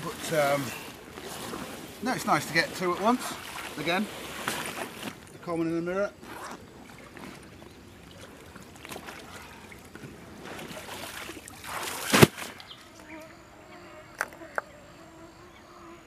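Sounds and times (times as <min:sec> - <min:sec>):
water lapping: 0:00.0 - 0:12.7
mosquitoes whining: 0:12.8 - 0:16.0.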